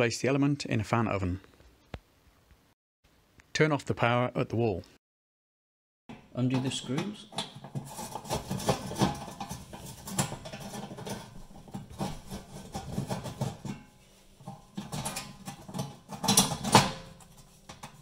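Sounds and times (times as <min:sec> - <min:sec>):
metal panel clatter: 0:06.6 - 0:18.0.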